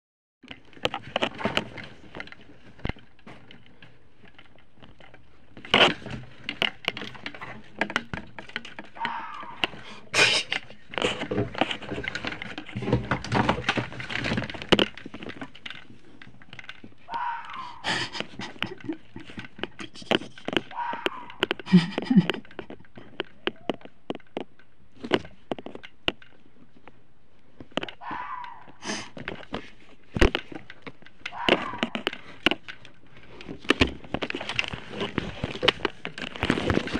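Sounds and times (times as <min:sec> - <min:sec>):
sharp clicks and knocks: 0:00.4 - 0:36.9
fox screaming and barking: 0:09.0 - 0:10.0, 0:17.1 - 0:18.2, 0:20.7 - 0:21.6, 0:27.9 - 0:29.1, 0:31.3 - 0:32.1.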